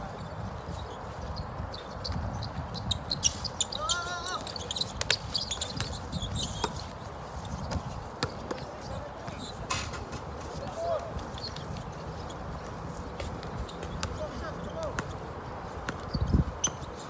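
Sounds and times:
basketball bouncing on a court: 7.6s - 8.7s, 13.8s - 14.2s.

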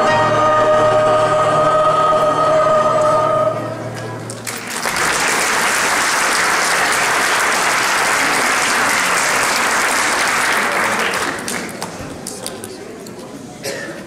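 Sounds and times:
audience applauding: 4.3s - 12.7s.

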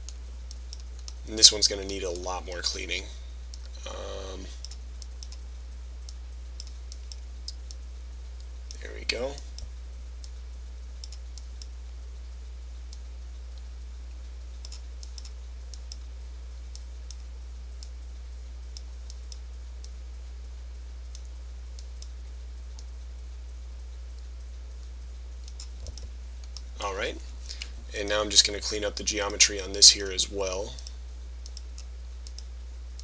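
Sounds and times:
steady low hum: 0.0s - 33.0s
computer mouse clicks: 11.0s - 11.7s, 14.6s - 16.0s, 30.8s - 33.0s.

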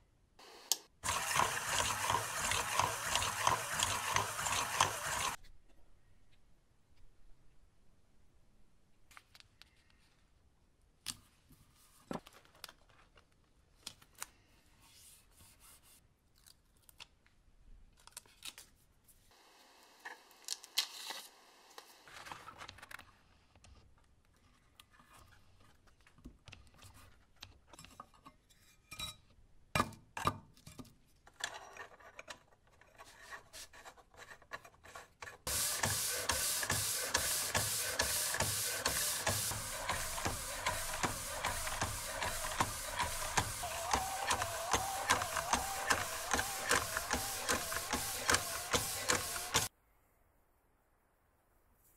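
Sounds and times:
metal plane sanding on sandpaper: 1.0s - 5.4s, 33.0s - 49.7s
rubbing on sandpaper: 34.9s - 49.7s.

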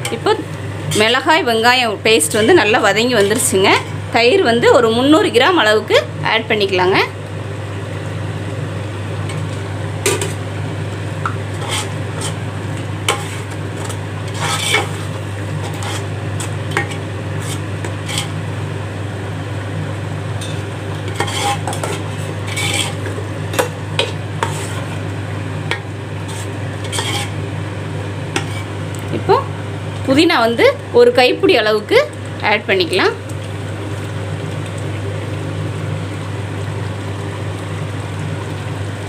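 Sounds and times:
masala sizzling in a pot: 0.0s - 39.0s
ladle scraping metal pot: 11.5s - 12.4s, 13.0s - 18.4s, 20.4s - 25.0s, 26.2s - 27.4s, 28.3s - 28.8s.

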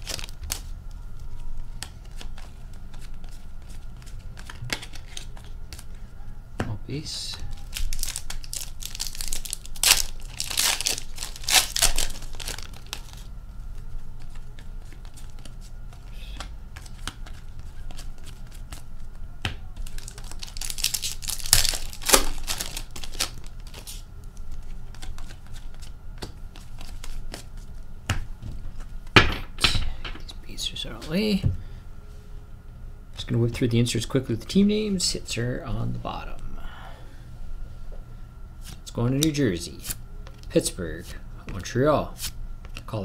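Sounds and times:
card wrappers crinkling: 0.0s - 0.7s, 7.2s - 27.7s.

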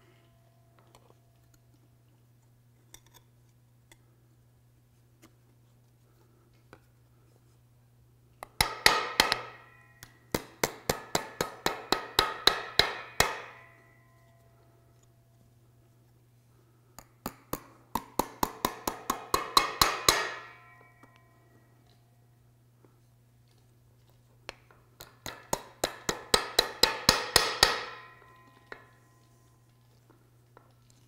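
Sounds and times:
hammer tapping metal: 8.4s - 14.4s, 17.0s - 21.6s, 25.0s - 29.3s.

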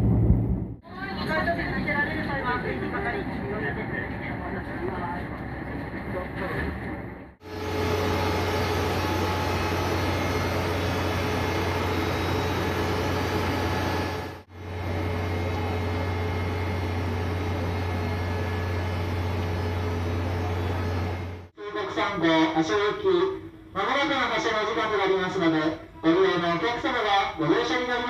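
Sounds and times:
idling diesel trains humming: 7.4s - 21.5s.

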